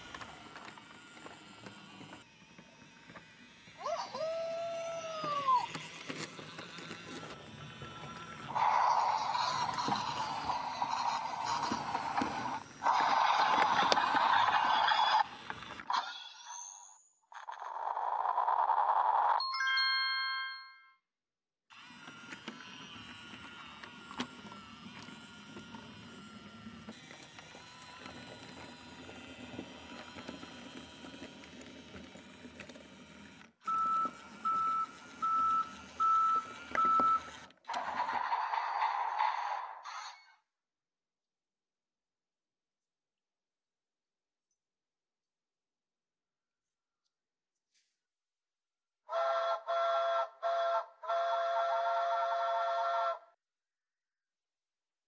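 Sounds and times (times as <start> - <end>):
toy train running on wooden track: 0.0 - 19.4, 21.7 - 39.8, 49.1 - 53.2
steam locomotive whistle: 49.1 - 53.4.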